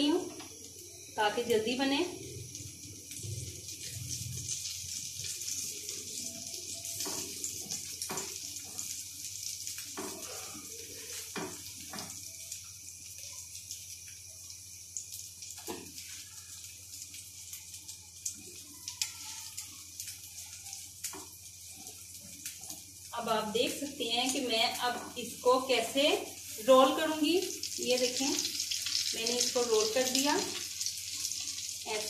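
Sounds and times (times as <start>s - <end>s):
omelette sizzling in pan: 0.0s - 32.0s.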